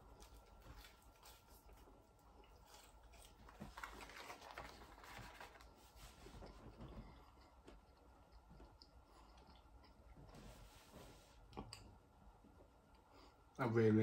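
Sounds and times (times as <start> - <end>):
mouth chewing chips: 0.0 - 5.6.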